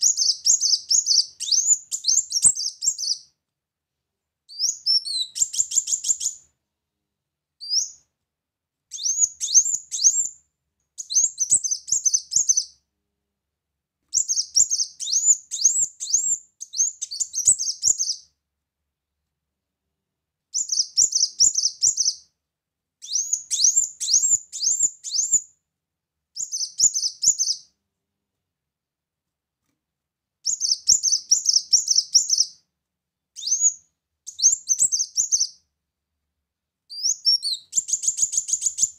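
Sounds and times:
bird singing rapid high chirps: 0.0s - 3.3s, 4.5s - 6.4s, 7.6s - 8.0s, 8.9s - 10.3s, 11.0s - 12.8s, 14.1s - 18.3s, 20.6s - 22.2s, 23.0s - 25.5s, 26.4s - 27.7s, 30.4s - 32.6s, 33.4s - 35.6s, 36.9s - 38.9s.

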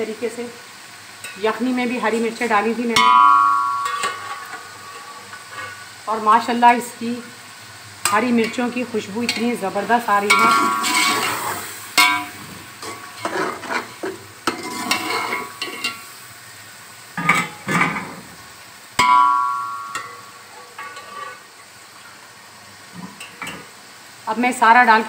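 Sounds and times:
soft frying sizzle: 0.0s - 25.0s
spoon knocking against pot: 3.0s - 4.6s, 19.0s - 20.2s
metal spoon scraping pot: 3.8s - 5.8s, 10.3s - 16.0s, 20.0s - 21.4s.

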